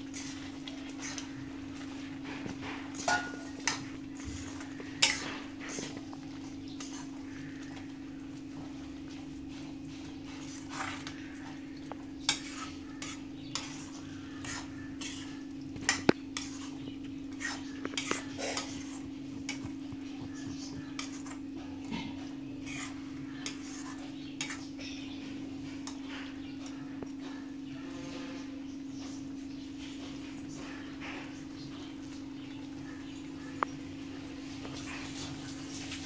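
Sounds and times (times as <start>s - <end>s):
steady low hum: 0.0s - 36.0s
metal spoon clinking and scraping pan: 2.9s - 5.8s, 12.2s - 19.6s, 21.0s - 21.4s, 22.7s - 24.7s.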